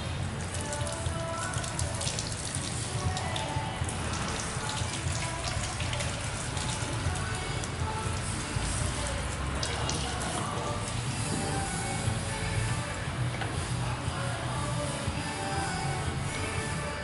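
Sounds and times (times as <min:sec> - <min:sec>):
water dripping: 0:00.0 - 0:13.6
shower head spraying water on hair: 0:00.3 - 0:13.0.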